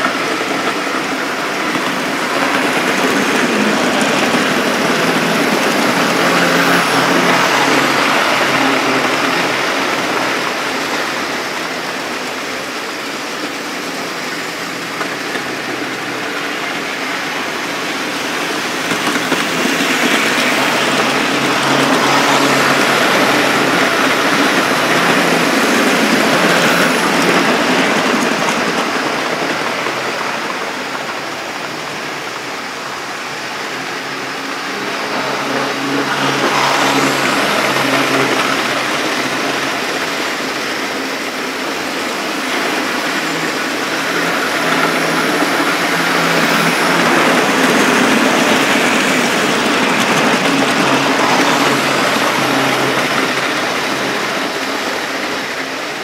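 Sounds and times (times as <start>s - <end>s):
locomotive motors humming: 0.0s - 56.0s
model train wheels rumbling on rail: 0.0s - 56.0s.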